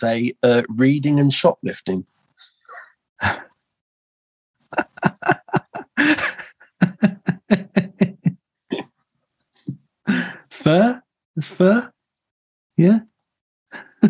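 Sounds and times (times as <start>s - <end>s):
man laughing: 4.7s - 8.4s, 13.8s - 14.0s.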